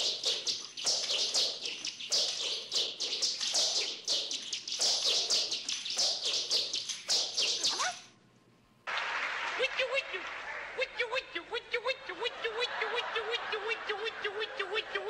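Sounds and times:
nunchaku swishing through air: 0.0s - 8.1s.

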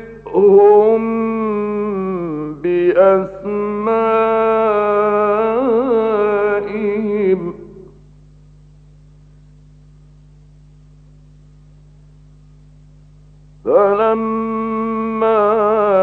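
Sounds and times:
man reciting melodically: 0.0s - 7.9s, 13.6s - 16.0s
low steady recording hum: 0.0s - 16.0s.

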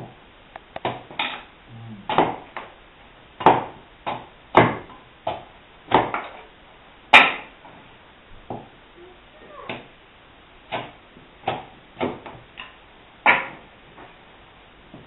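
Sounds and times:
hand tool chopping wood: 0.8s - 1.4s, 2.1s - 2.6s, 3.4s - 6.4s, 13.2s - 13.6s.

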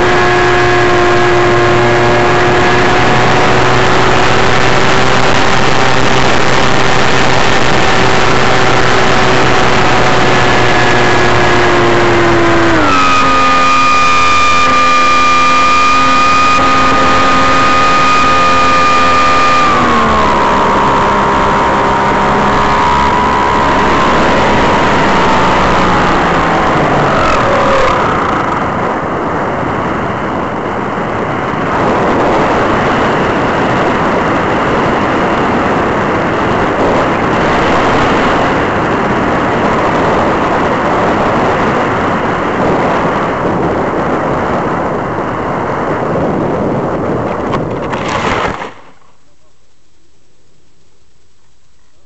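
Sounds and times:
wind rushing over microphone: 0.0s - 49.5s
model motor and propeller hum: 0.0s - 52.0s.

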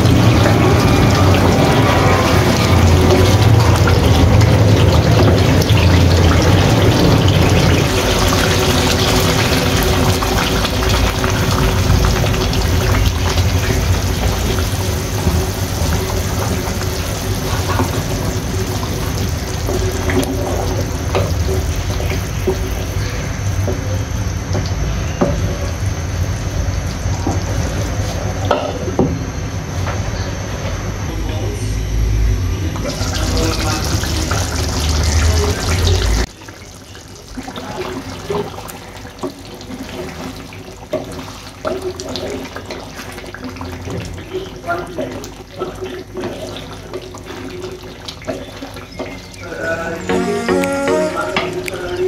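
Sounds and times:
water poured into hot pan: 0.0s - 23.9s, 32.8s - 49.8s
curry bubbling and sizzling: 0.0s - 29.0s, 32.5s - 52.0s.

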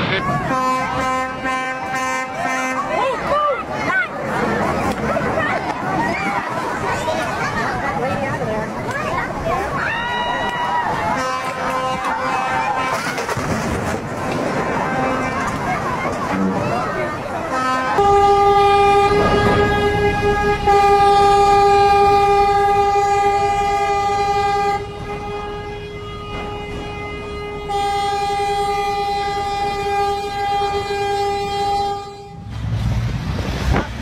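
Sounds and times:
ship's horn blast: 0.0s - 3.4s, 10.6s - 33.9s.

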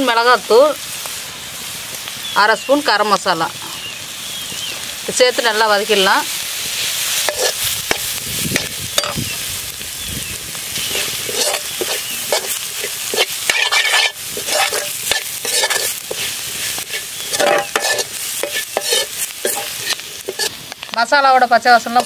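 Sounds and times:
oil sizzling: 0.0s - 22.0s
ladle scraping and clinking on pan: 7.3s - 8.0s, 8.6s - 9.2s, 10.9s - 20.5s.

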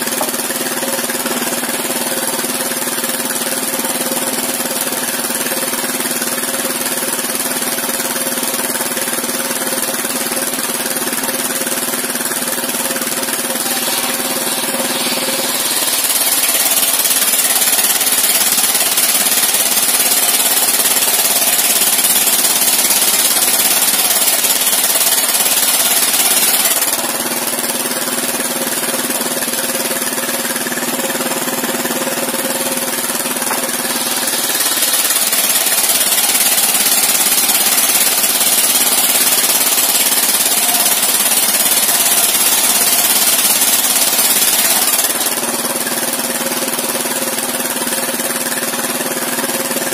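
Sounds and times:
engine running steadily: 0.0s - 49.9s
saw blade ripping through wood: 10.9s - 47.6s.

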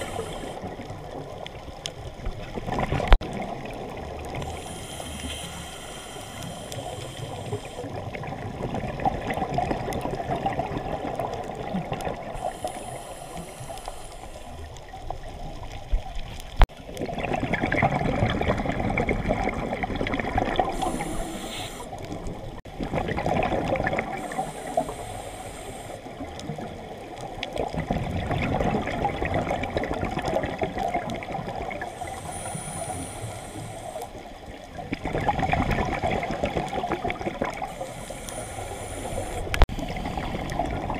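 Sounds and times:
regulator hiss on inhale: 0.0s - 0.7s, 4.4s - 7.9s, 12.4s - 14.8s, 20.6s - 22.2s, 24.1s - 26.3s, 31.8s - 34.3s, 37.6s - 40.8s
bubbles rushing on exhale: 2.3s - 12.7s, 16.8s - 24.6s, 26.1s - 32.0s, 34.7s - 37.8s, 39.1s - 40.9s.

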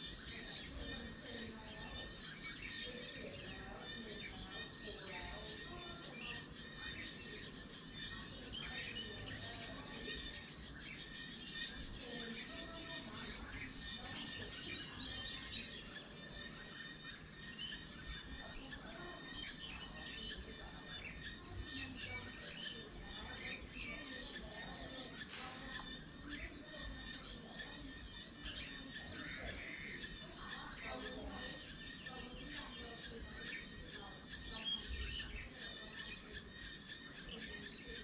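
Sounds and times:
small birds chirping: 0.0s - 38.0s.

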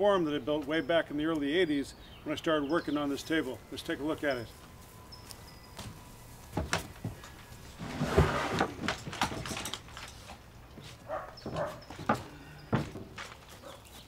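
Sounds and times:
scraping rustle: 4.5s - 14.0s
wood knocking and clattering: 7.9s - 10.1s, 11.4s - 13.4s.

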